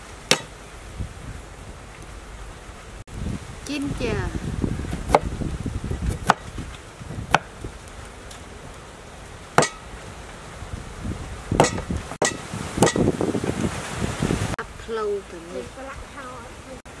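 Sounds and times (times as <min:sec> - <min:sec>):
cleaver chopping on wooden block: 0:00.3 - 0:00.5, 0:06.1 - 0:06.5, 0:07.3 - 0:07.5, 0:09.6 - 0:09.8, 0:11.6 - 0:13.1.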